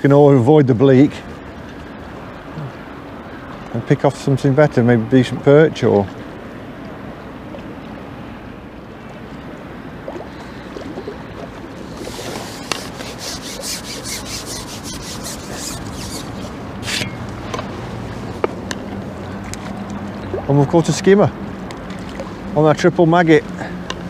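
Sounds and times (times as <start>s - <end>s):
short rasping rubs: 11.8s - 17.4s.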